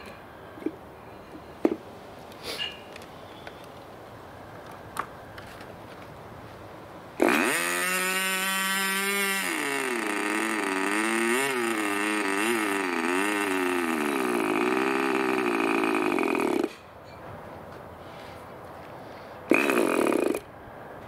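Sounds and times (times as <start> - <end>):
model glow engine running: 7.2 - 16.7
electric starter spinning engine: 7.2 - 16.9, 19.5 - 20.5.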